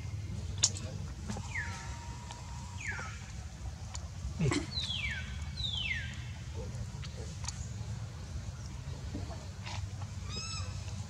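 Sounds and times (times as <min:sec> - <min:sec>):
baby monkey high calls: 0:10.2 - 0:10.8.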